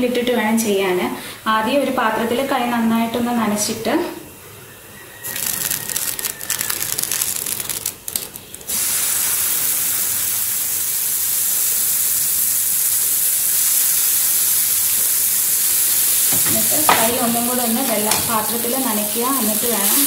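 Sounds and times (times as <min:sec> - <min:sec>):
dough sizzling in pan: 0:05.2 - 0:20.0
hot oil crackling in frying pan: 0:05.2 - 0:20.0.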